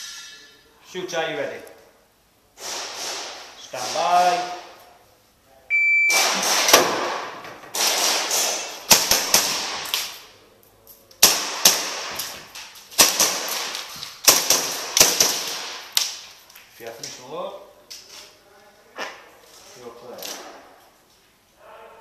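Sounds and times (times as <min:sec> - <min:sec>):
shot timer beep: 0:05.7 - 0:06.2
airsoft pistol shots: 0:06.1 - 0:10.2, 0:11.2 - 0:12.3, 0:13.0 - 0:16.0.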